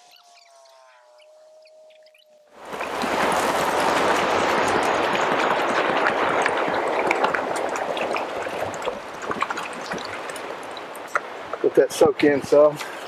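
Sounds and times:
water pouring and splashing: 2.6 - 13.0.

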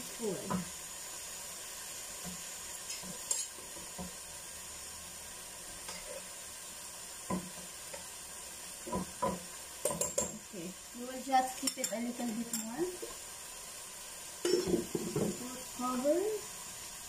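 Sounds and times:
food sizzling in a pot: 0.0 - 17.0
cabbage being stirred: 2.2 - 4.2
metal utensil clinking on pot: 9.8 - 10.4.

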